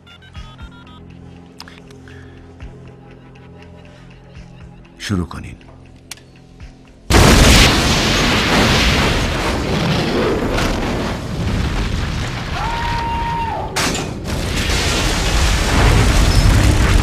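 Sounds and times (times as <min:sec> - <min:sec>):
explosion rumble: 0:07.1 - 0:13.2, 0:13.8 - 0:17.0.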